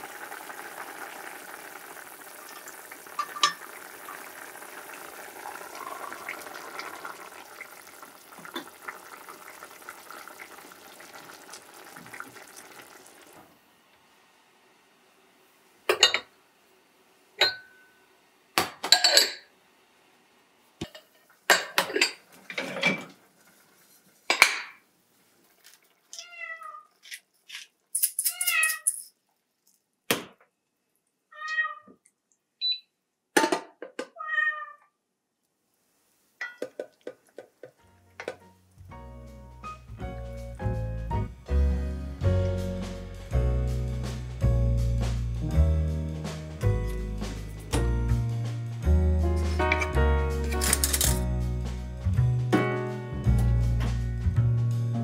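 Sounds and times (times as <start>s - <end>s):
soup simmering and bubbling: 0.0s - 13.7s, 36.5s - 38.9s
dishes clinking: 3.2s - 3.7s, 15.9s - 16.3s, 17.4s - 17.9s, 18.8s - 19.5s, 20.8s - 23.1s, 24.3s - 24.8s, 36.4s - 37.0s, 50.5s - 51.2s
cat meowing: 26.1s - 27.0s, 31.3s - 32.0s, 34.2s - 34.9s.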